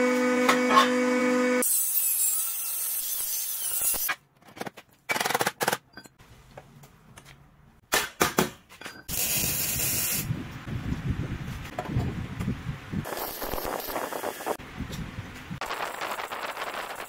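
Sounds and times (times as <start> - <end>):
angle grinder cutting metal: 0.0 - 4.1, 9.1 - 10.3
arc welder crackling: 9.1 - 10.3, 13.0 - 14.6, 15.6 - 17.0.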